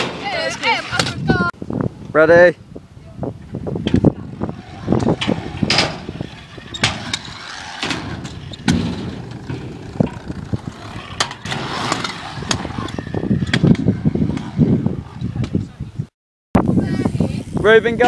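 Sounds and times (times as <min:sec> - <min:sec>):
scooter wheels rolling on ramps: 0:00.0 - 0:01.5, 0:03.7 - 0:15.8.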